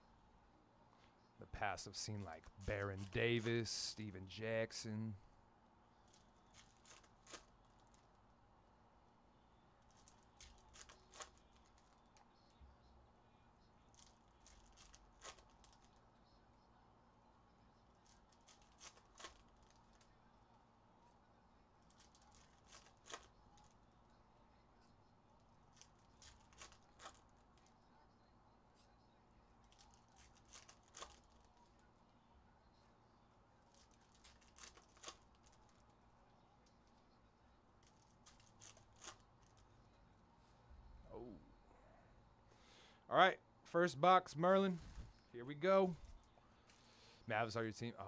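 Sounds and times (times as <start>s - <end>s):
wrappers crinkling and tearing: 6.1s - 8.0s, 9.9s - 12.0s, 13.9s - 15.9s, 18.0s - 20.1s, 21.9s - 23.7s, 25.7s - 27.3s, 29.6s - 31.7s, 33.7s - 35.9s.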